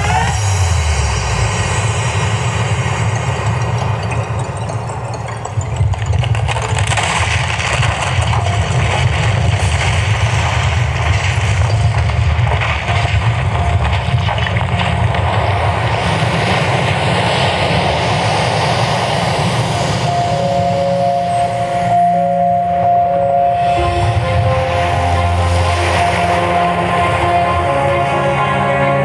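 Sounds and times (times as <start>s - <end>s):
noisy wash: 0.0s - 29.0s
loud low rumble: 6.6s - 29.0s
held tone: 20.0s - 27.8s.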